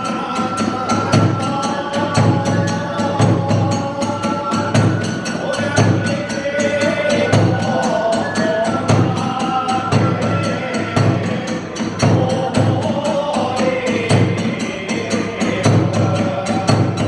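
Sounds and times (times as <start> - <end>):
bamboo flute melody: 0.0 - 11.5
large drum low beats: 0.0 - 17.0.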